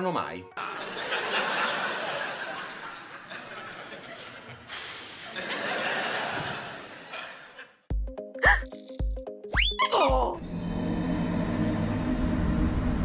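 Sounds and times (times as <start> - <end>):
audience laughing: 0.6 - 7.9.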